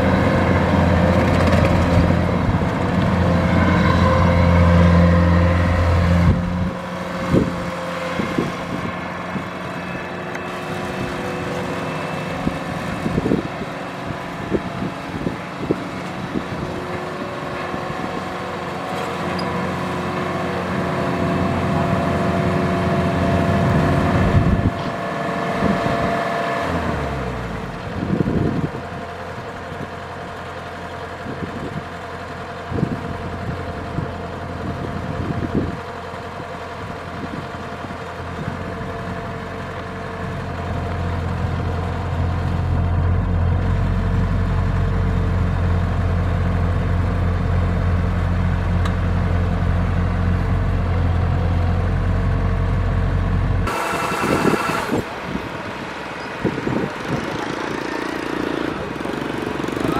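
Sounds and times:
deep loud engine drone: 0:00.0 - 0:32.0, 0:32.6 - 0:59.9
combine harvester droning: 0:00.0 - 0:59.9.

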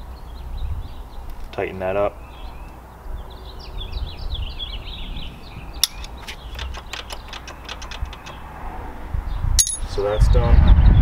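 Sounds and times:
ratcheting wrench clicking: 0:05.8 - 0:08.5.

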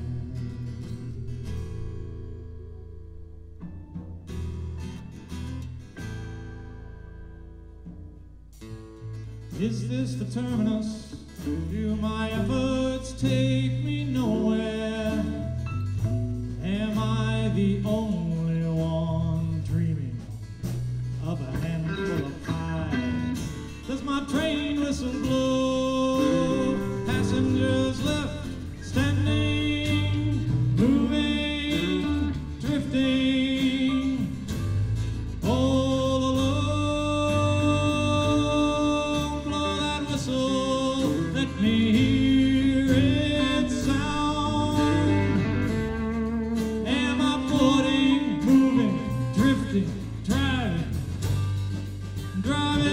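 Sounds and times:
bass guitar: 0:00.0 - 0:52.9
drums: 0:00.0 - 0:52.9
electric guitars: 0:00.0 - 0:52.9
person singing: 0:09.6 - 0:15.6, 0:21.2 - 0:34.6, 0:35.4 - 0:51.0, 0:52.3 - 0:52.9.

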